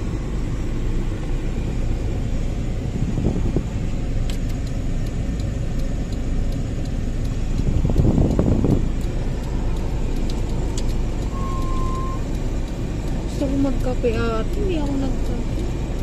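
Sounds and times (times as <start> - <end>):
engine and road rumble: 0.0 - 16.0
light regular ticking: 0.0 - 16.0.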